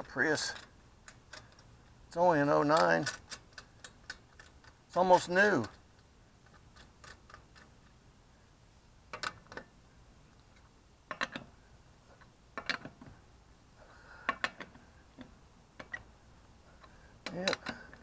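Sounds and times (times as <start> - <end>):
socket ratchet clicking: 2.8 - 4.8.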